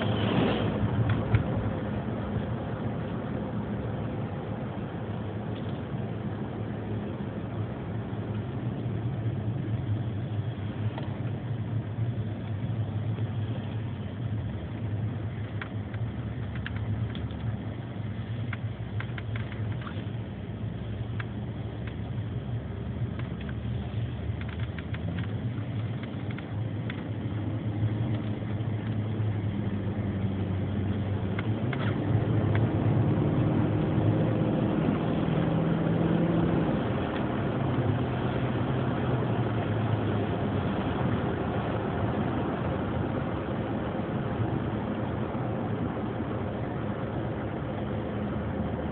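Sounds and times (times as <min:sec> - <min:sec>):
car engine hum: 0:00.0 - 0:48.9
road and tyre noise: 0:00.0 - 0:48.9.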